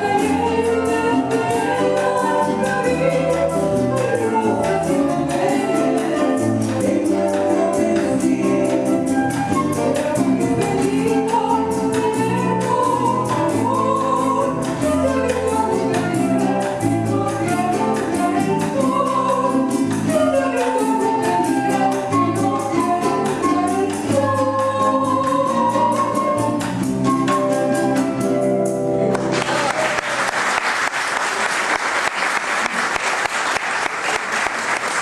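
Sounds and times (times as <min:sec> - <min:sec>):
soprano singing: 0:00.0 - 0:28.6
audience applauding: 0:29.1 - 0:35.0.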